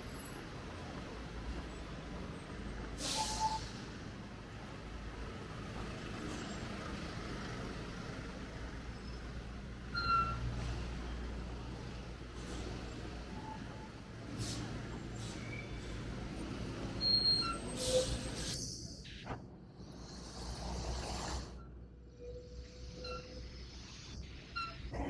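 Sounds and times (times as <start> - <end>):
traffic engine and tyre rumble: 0.0 - 25.0
brief high squeak: 3.0 - 3.8, 10.0 - 10.5, 17.0 - 18.9, 22.2 - 24.9.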